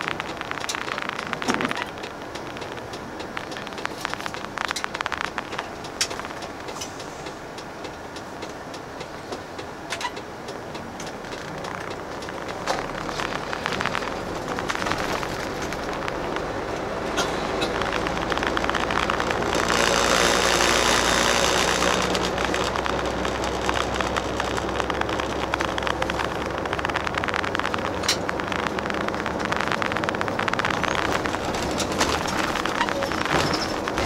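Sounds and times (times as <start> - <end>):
coach engine hum: 0.0 - 34.0
tyre and road noise: 0.0 - 34.0
rush of passing noise: 11.0 - 34.0.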